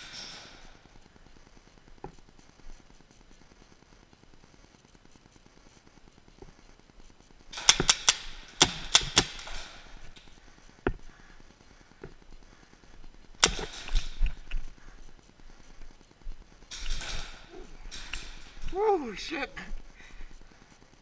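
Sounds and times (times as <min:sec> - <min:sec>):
paintball markers firing: 0:07.5 - 0:11.3, 0:13.3 - 0:15.9.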